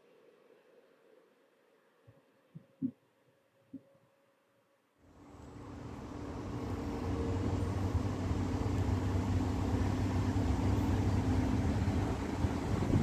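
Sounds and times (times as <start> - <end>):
electric locomotive humming: 5.0 - 13.0
train rumble: 5.1 - 13.0.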